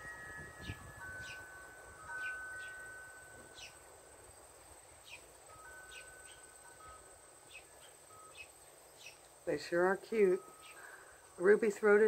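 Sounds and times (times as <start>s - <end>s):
metal wind chime ringing: 0.0s - 4.4s, 5.5s - 7.4s, 10.1s - 11.8s.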